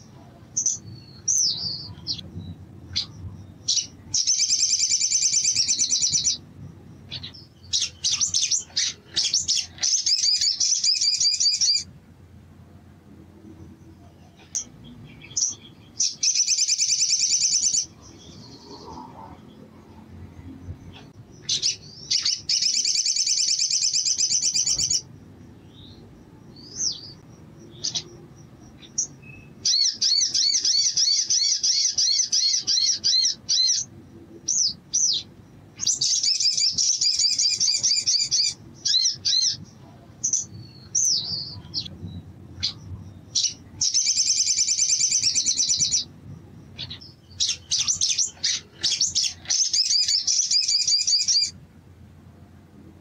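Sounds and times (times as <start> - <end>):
bird high-pitched trilling: 0.6 - 6.4, 7.1 - 11.9, 14.4 - 19.0, 21.0 - 25.1, 25.7 - 39.7, 42.6 - 46.1, 46.7 - 51.6.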